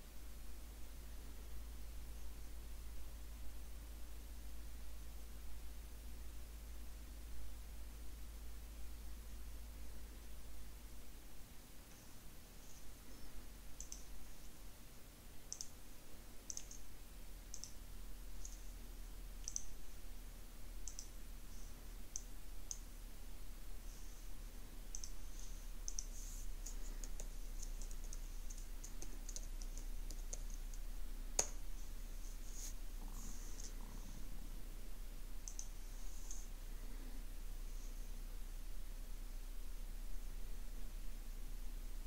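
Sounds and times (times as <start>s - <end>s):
faint steady hum: 0.0s - 42.0s
mouse and keyboard clicks: 13.8s - 14.2s, 15.5s - 15.8s, 16.5s - 16.9s, 17.5s - 17.8s, 19.4s - 19.8s, 20.8s - 21.2s, 24.9s - 30.8s, 35.4s - 36.4s.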